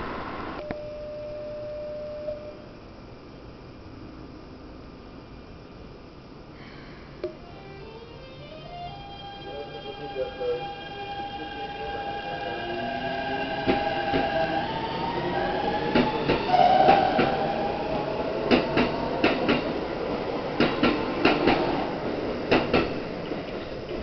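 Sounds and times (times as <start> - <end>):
electric train motor whine: 7.3 - 20.3.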